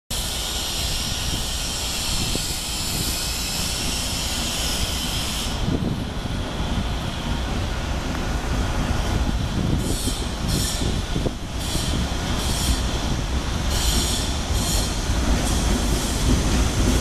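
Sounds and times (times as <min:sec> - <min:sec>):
high hiss: 0:00.1 - 0:06.6
subway train rumbling: 0:00.1 - 0:17.0.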